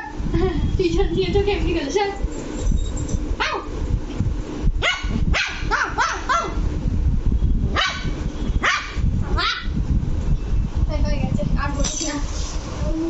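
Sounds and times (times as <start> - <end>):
puppy yapping: 4.8 - 6.6, 7.8 - 9.7.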